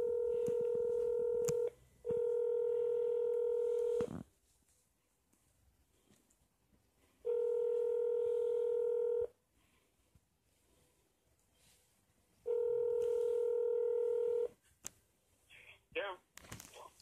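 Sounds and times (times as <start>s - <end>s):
telephone ringback tone: 0.0s - 4.1s, 7.2s - 9.3s, 12.5s - 14.5s.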